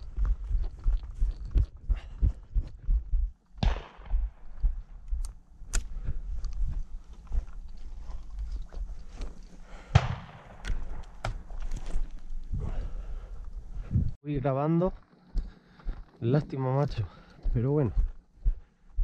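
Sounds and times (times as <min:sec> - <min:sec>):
shotgun shots with echo: 0:03.6 - 0:04.4, 0:09.9 - 0:10.6.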